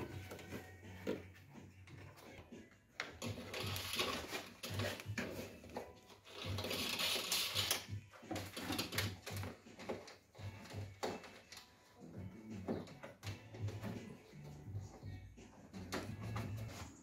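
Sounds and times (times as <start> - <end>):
cable rustling and scraping: 0.0 - 17.0.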